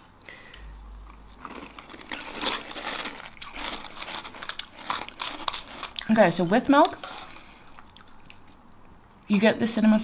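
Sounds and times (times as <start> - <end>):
person chewing crunchy cereal: 0.8 - 8.7.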